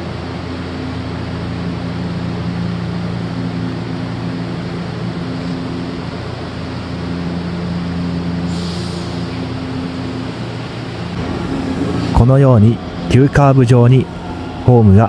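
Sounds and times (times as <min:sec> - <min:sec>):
electric train equipment hum: 0:00.0 - 0:15.0
short air hiss: 0:08.5 - 0:09.4.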